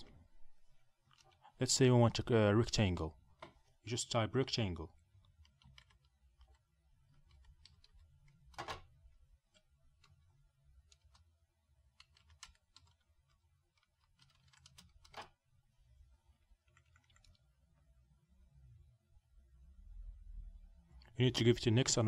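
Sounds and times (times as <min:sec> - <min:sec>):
typing on computer keyboard: 0:05.2 - 0:08.9, 0:11.9 - 0:15.3, 0:16.6 - 0:17.4.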